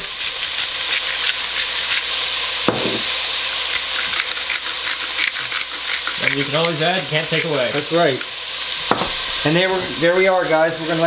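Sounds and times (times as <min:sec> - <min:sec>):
vegetables sizzling in a pot: 0:00.0 - 0:11.0
sharp knock: 0:02.7 - 0:03.0, 0:08.9 - 0:09.2.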